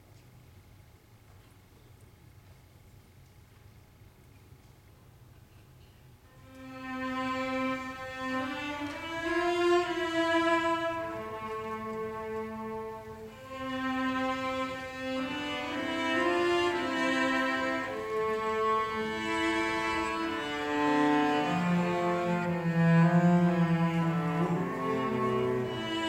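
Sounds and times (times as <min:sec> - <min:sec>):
cello ensemble bowed melody: 0:06.4 - 0:26.0.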